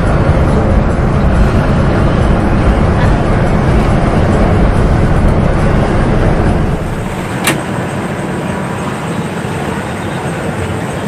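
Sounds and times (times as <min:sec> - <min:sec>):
bus engine and road noise: 0:00.0 - 0:11.0
sharp click: 0:07.4 - 0:07.7.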